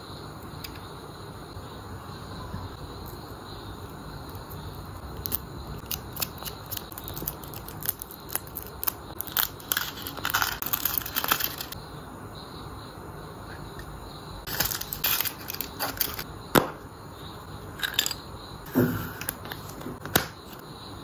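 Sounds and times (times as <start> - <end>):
foil wrapper crinkling: 5.2 - 11.8.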